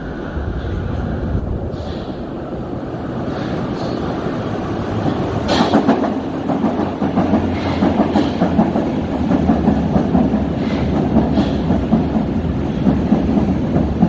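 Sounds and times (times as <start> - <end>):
train rumbling into station: 0.0 - 14.0
wheels clacking over rail joints: 3.3 - 14.0.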